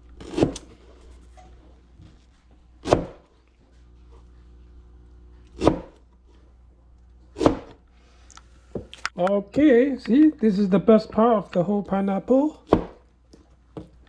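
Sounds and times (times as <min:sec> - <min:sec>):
cleaver chopping on plastic board: 0:02.8 - 0:03.2, 0:05.5 - 0:06.0, 0:07.4 - 0:07.8, 0:12.7 - 0:13.0.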